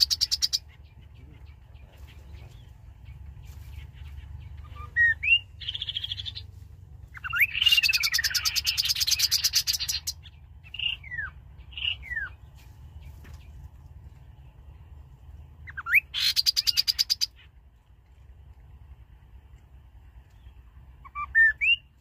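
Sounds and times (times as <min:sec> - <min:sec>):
bird whistles and trills: 0:00.0 - 0:00.7, 0:03.5 - 0:06.5, 0:07.1 - 0:12.4, 0:15.6 - 0:17.5, 0:21.0 - 0:22.0.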